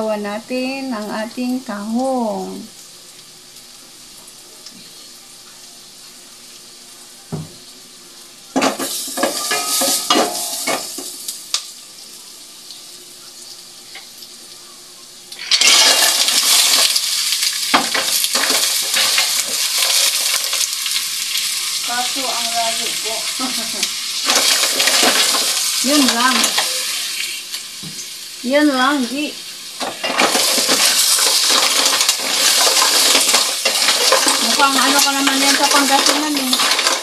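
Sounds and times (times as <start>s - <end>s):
mussels sizzling in oil: 0.0s - 37.0s
shells clattering in pot: 15.4s - 17.0s, 17.7s - 20.7s, 24.2s - 26.7s, 29.8s - 37.0s.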